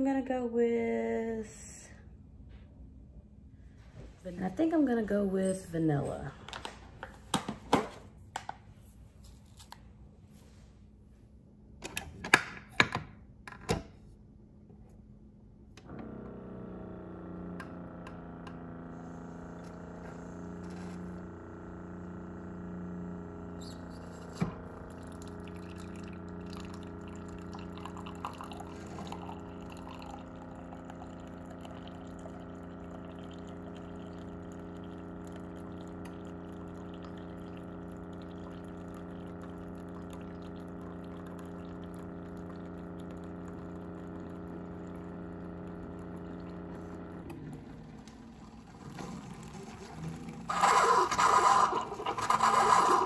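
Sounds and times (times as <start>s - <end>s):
coffee maker pump hum: 3.7s - 9.8s, 14.7s - 53.0s
liquid streaming into mug: 19.1s - 53.0s.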